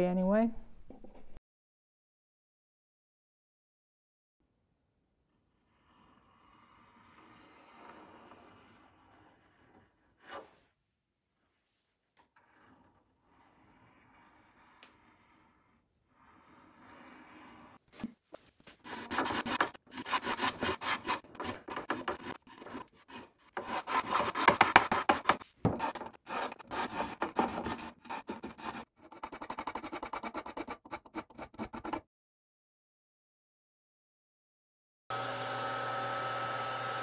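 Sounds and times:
spokeshave shaving wood: 18.6 - 29.8.

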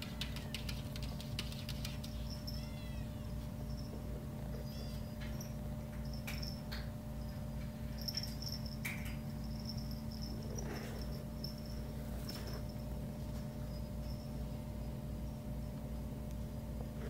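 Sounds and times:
kittens scrabbling on wooden floor: 0.0 - 2.7
steady low hum: 0.0 - 17.0.

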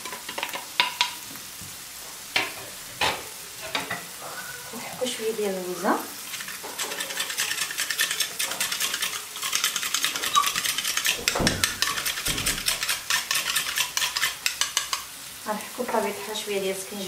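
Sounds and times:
onions frying in butter: 0.0 - 17.0
nutmeg scraping on grater: 6.3 - 15.1.

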